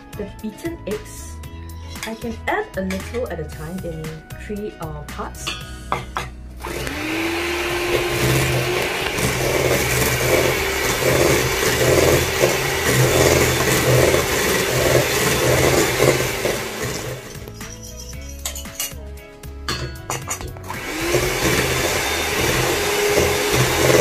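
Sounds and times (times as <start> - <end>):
electric hand mixer running: 6.6 - 17.6, 20.6 - 24.0
beaters whisking batter in bowl: 6.7 - 19.0, 20.1 - 24.0.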